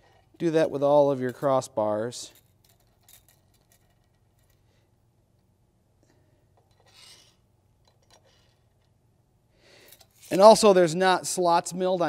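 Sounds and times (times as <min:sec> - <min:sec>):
faint short scrape: 0:06.8 - 0:07.4.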